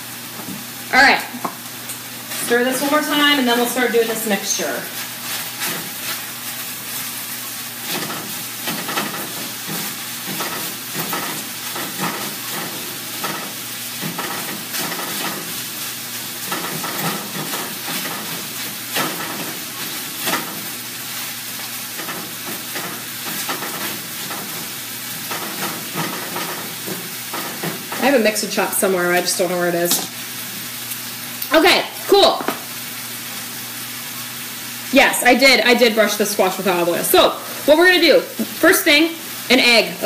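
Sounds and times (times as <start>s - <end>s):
food sizzling in a frying pan: 0.0s - 40.0s
utensil scraping and knocking pan: 25.2s - 28.1s.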